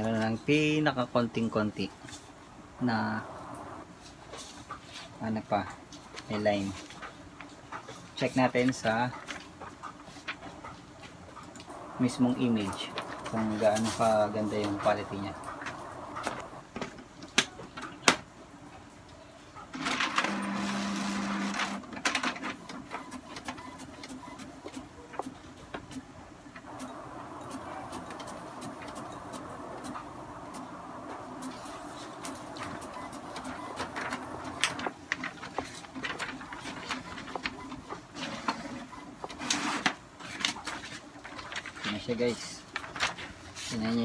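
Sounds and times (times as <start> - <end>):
printer motor humming: 2.8 - 3.9, 11.7 - 16.7, 19.8 - 25.3, 26.6 - 39.4
paper rustling: 26.7 - 42.0, 42.6 - 44.0
printer clicks: 32.2 - 35.0.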